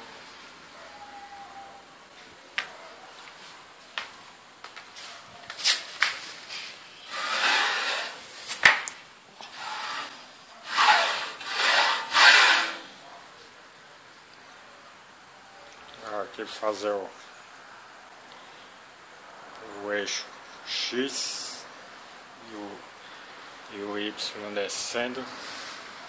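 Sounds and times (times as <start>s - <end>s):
hand scraping along metal rails: 5.0s - 8.7s, 9.4s - 12.9s.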